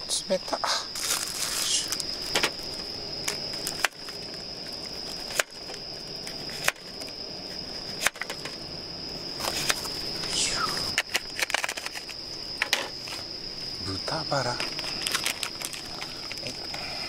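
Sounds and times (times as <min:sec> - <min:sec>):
insects chirring: 0:00.0 - 0:17.0
plastic pack rustling: 0:00.9 - 0:05.8, 0:14.6 - 0:16.6.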